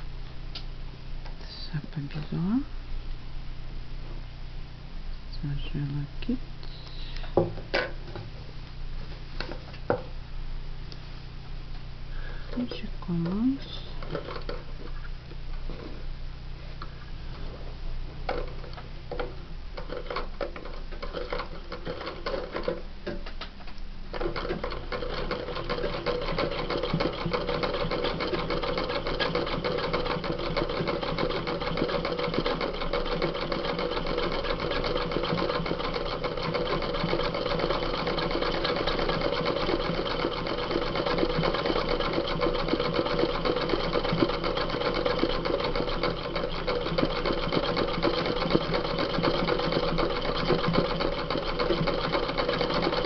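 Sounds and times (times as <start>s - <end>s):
sewing machine stitching: 14.0s - 14.6s, 18.3s - 22.8s, 24.1s - 53.0s.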